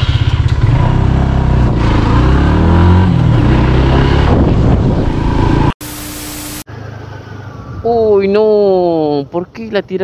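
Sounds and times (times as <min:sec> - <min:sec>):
motorcycle engine accelerating: 0:00.0 - 0:07.1.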